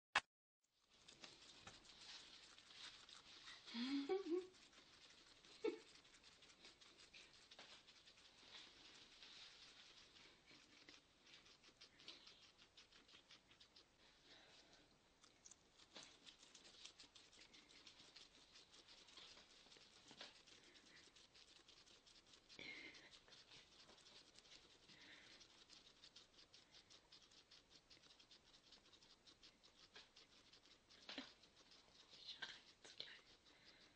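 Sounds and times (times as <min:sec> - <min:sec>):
guinea pigs chewing lettuce: 0:00.7 - 0:33.9.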